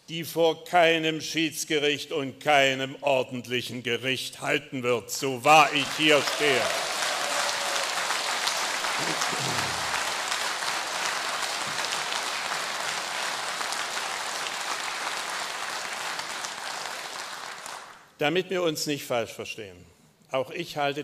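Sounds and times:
audience applauding: 0:05.6 - 0:18.1.

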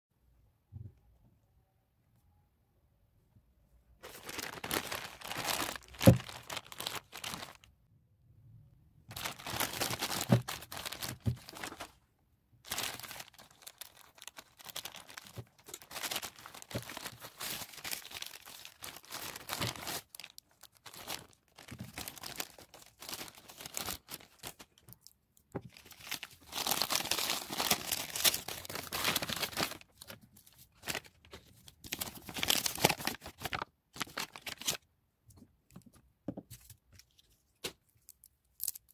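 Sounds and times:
plastic packaging crinkling and tearing: 0:04.0 - 0:07.7, 0:09.1 - 0:12.0, 0:12.7 - 0:34.8.

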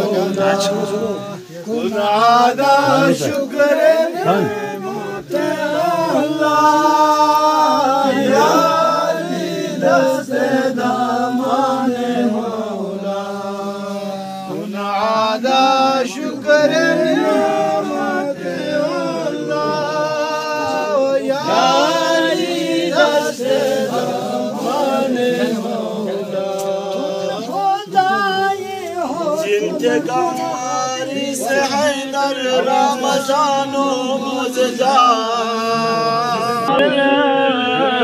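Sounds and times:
devotional chanting: 0:00.0 - 0:38.0.

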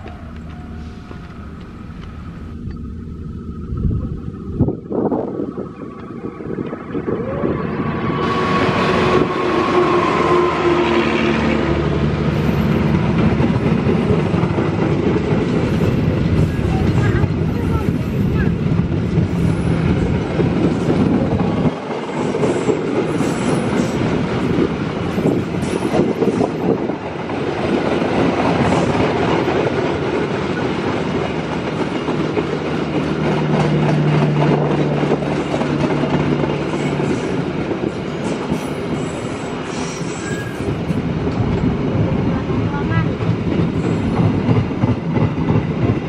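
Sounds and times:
steady low hum: 0:00.0 - 0:07.0
train wheels clicking over rail joints: 0:12.1 - 0:46.0.

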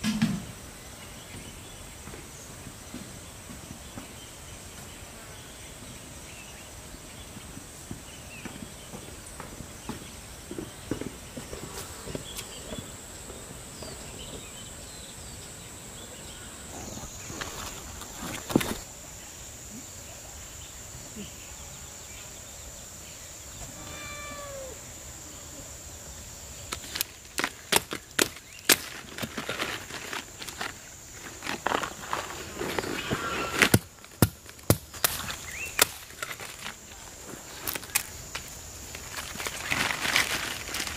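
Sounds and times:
faint bird chirps: 0:13.7 - 0:26.7
high-pitched insect drone: 0:16.5 - 0:27.1
leaves snapping and rustling: 0:17.0 - 0:18.8, 0:26.7 - 0:40.9.

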